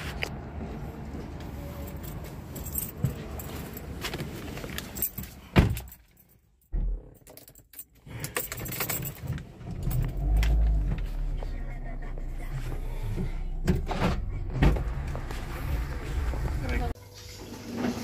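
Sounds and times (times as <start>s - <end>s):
metallic jingling and clicks: 7.2s - 10.8s
car hum on the road: 9.5s - 17.0s.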